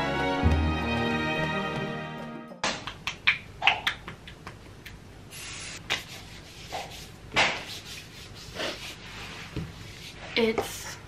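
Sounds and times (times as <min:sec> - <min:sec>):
music: 0:00.0 - 0:02.7.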